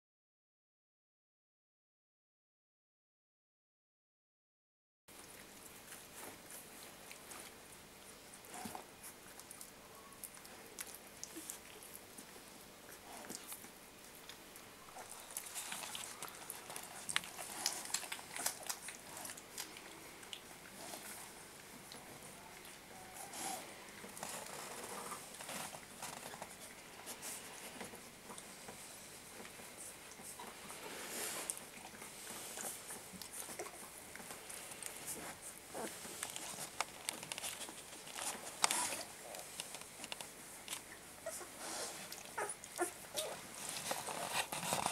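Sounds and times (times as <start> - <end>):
soft rustling: 5.2 - 14.3, 15.0 - 44.9
puppies pawing on fleece bedding: 5.3 - 14.4, 15.0 - 44.9
puppies squeaking: 42.3 - 43.4.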